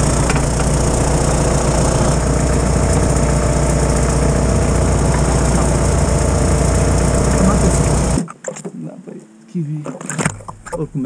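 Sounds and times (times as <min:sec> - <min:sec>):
car engine idling: 0:00.0 - 0:08.2.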